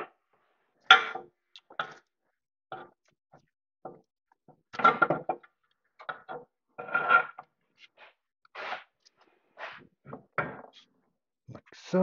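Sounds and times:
metal parts clunking and scraping: 6.0s - 7.5s.

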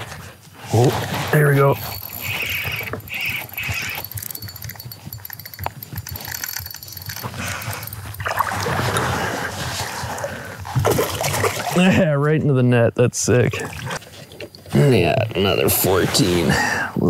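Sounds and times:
fishing reel clicking: 1.8s - 9.1s
water splashing: 6.3s - 11.8s.

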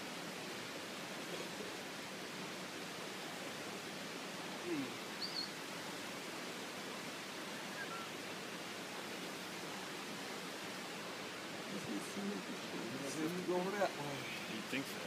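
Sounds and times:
outdoor background hiss: 0.0s - 15.0s
high chirps: 7.6s - 8.1s.

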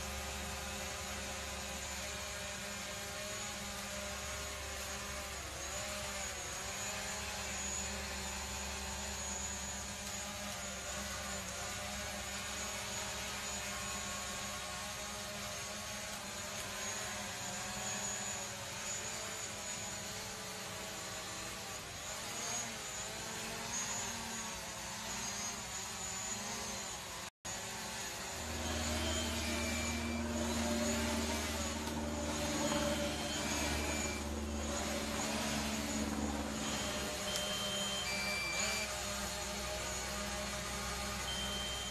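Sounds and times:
drone propellers whining: 0.0s - 41.9s
short high tones: 36.4s - 39.0s, 41.2s - 41.9s.

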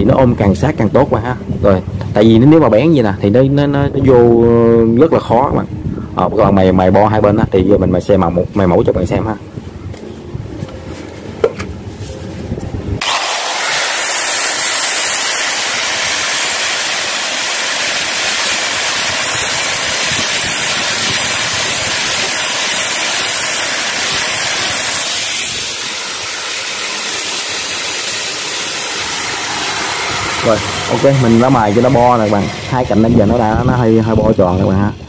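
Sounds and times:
angle grinder grinding metal: 13.0s - 34.9s.

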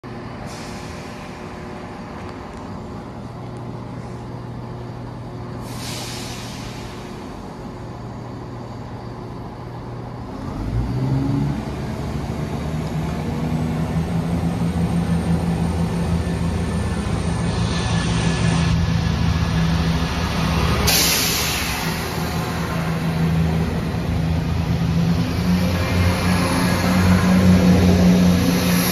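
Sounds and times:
train diesel engines: 0.0s - 28.9s
train coaches passing hiss: 0.4s - 1.6s, 5.6s - 7.4s, 20.8s - 24.1s.

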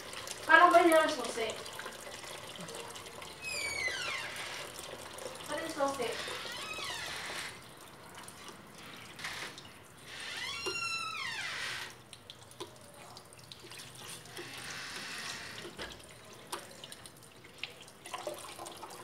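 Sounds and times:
water dripping into plastic bucket: 0.0s - 11.0s, 11.8s - 19.0s
high squeak: 3.4s - 4.5s.

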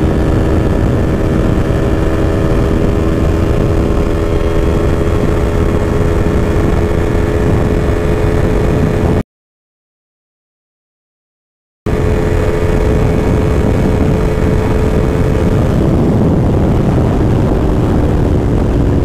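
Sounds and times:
motorcycle engine running: 0.0s - 9.2s, 11.9s - 19.0s
wind rush: 0.0s - 9.2s, 11.9s - 19.0s.

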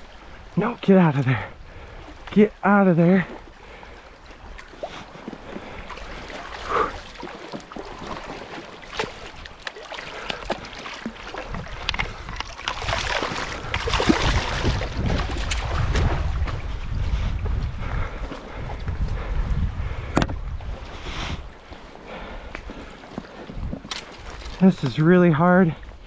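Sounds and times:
water splashing from thrashing fish: 3.2s - 16.4s
wind rumble on microphone: 11.3s - 25.0s.

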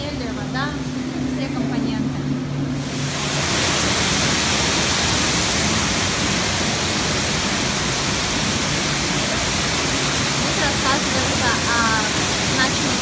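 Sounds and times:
rush of falling water: 2.7s - 13.0s.

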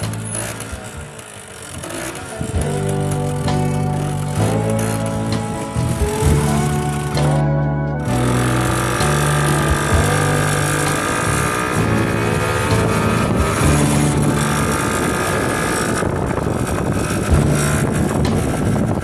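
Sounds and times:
scooter engine running: 0.0s - 19.0s
wind noise on microphone: 0.0s - 19.0s.

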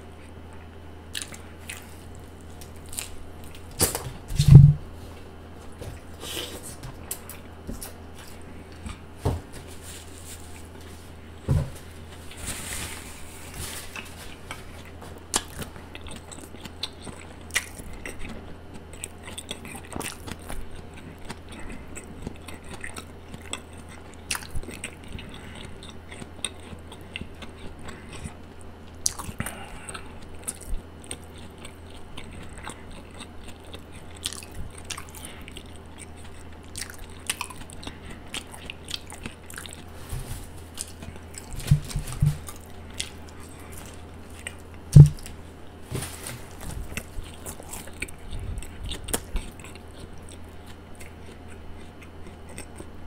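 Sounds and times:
low hum: 0.0s - 6.2s
close chewing and biting: 0.2s - 4.6s, 5.7s - 9.2s, 13.3s - 53.0s.

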